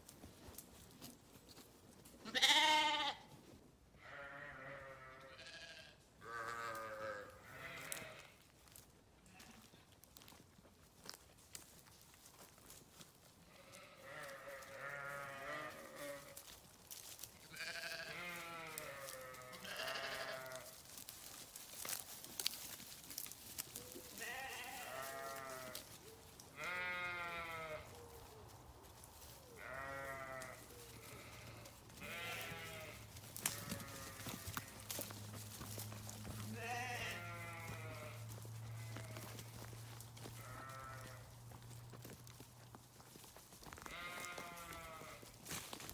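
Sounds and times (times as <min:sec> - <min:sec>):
sheep bleating: 0:02.2 - 0:03.3, 0:04.0 - 0:08.4, 0:13.5 - 0:16.4, 0:17.5 - 0:20.8, 0:24.2 - 0:25.8, 0:26.5 - 0:28.0, 0:29.5 - 0:35.1, 0:36.3 - 0:39.6, 0:40.2 - 0:41.3, 0:43.8 - 0:45.4.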